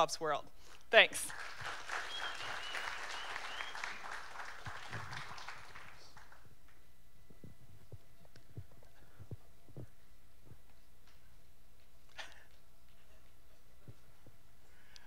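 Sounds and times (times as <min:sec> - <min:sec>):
audience applause: 0:01.3 - 0:06.5
soft low thumps: 0:07.3 - 0:10.7.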